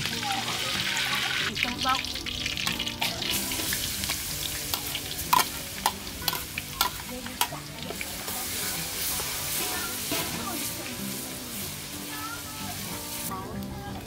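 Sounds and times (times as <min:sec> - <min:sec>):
food sizzling in oil: 0:00.0 - 0:14.0
utensil scraping against pan: 0:03.6 - 0:11.0.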